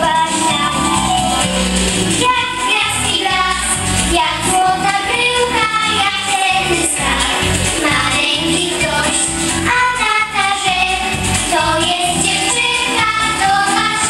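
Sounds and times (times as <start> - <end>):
girl singing into a microphone: 0.0 - 0.8
instrumental accompaniment with bass: 0.0 - 14.0.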